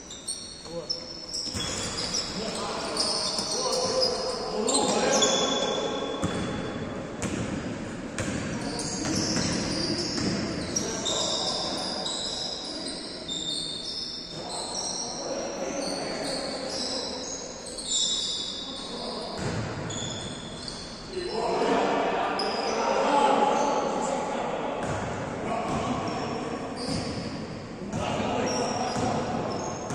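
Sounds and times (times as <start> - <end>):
sneakers squeaking: 0.0 - 21.6, 25.7 - 29.9
basketball bouncing: 7.2 - 7.6, 8.2 - 9.6, 10.2 - 10.4.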